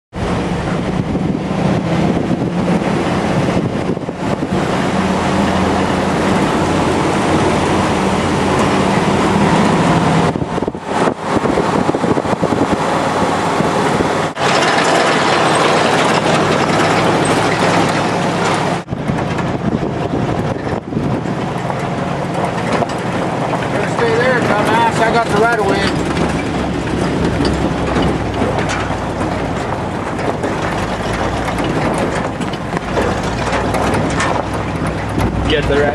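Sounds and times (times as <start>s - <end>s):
pickup engine droning: 0.1s - 35.9s
tyre and road noise: 0.1s - 35.9s.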